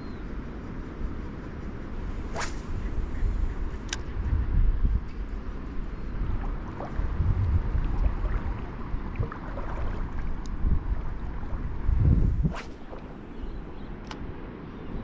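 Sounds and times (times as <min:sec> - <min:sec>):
wind buffeting microphone: 0:00.0 - 0:15.0
water sloshing around legs: 0:07.8 - 0:10.4.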